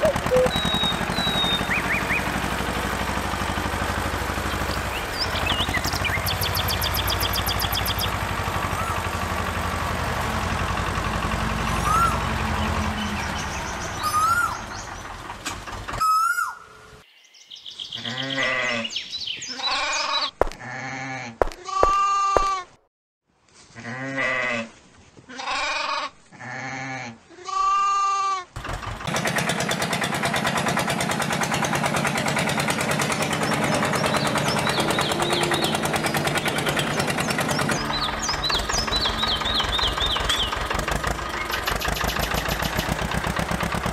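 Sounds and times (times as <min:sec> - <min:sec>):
birds chirping: 0:00.0 - 0:09.8, 0:11.6 - 0:15.4, 0:16.0 - 0:20.4, 0:31.4 - 0:43.1
small engine chugging: 0:00.0 - 0:16.5, 0:28.6 - 0:43.9
bleats: 0:19.5 - 0:22.7.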